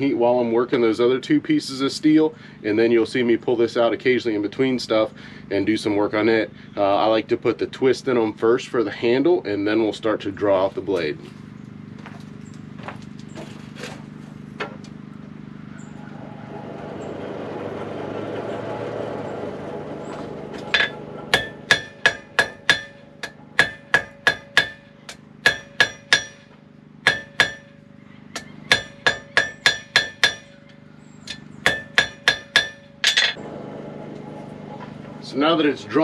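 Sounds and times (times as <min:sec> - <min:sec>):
forge air blower hum: 0:13.2 - 0:36.0
hammer striking steel on anvil: 0:20.7 - 0:30.6, 0:31.3 - 0:33.4.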